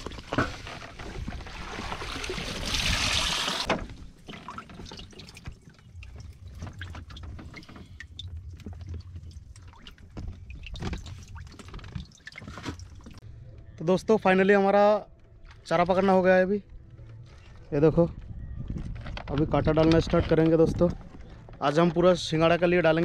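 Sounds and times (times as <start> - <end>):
water pouring off a net: 0.0 - 8.3
water dripping: 4.2 - 13.2.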